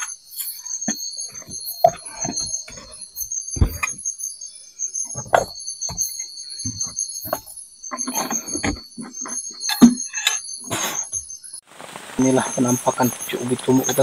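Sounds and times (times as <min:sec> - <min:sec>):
night insects chorus: 0:00.0 - 0:14.0.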